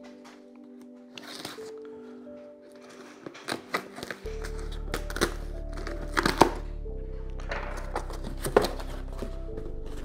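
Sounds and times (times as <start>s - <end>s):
background music: 0.0s - 10.0s
cardboard clicks and knocks: 7.4s - 10.0s.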